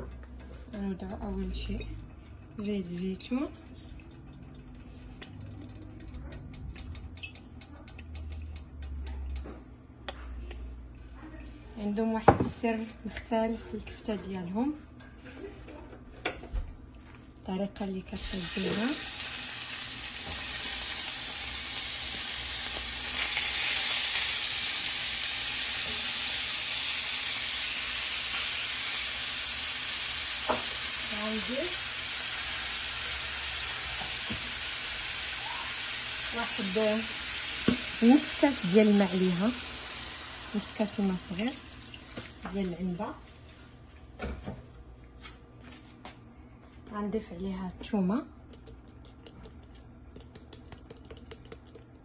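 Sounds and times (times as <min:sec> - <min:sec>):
meat sizzling in a frying pan: 0:18.2 - 0:42.4.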